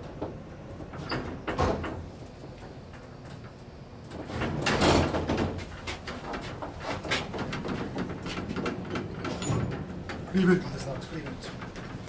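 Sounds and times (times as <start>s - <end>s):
elevator sliding doors moving: 0.0s - 12.0s.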